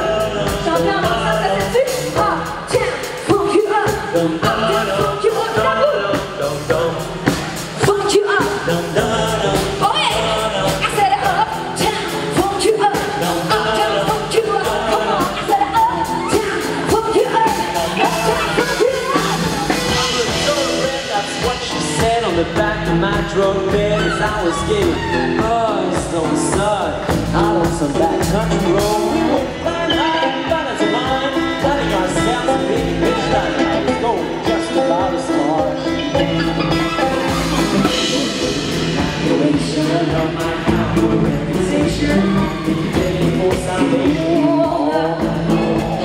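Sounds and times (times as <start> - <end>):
woman singing: 0.0 - 6.4, 7.8 - 22.6, 37.8 - 46.0
live country band playing: 0.0 - 46.0.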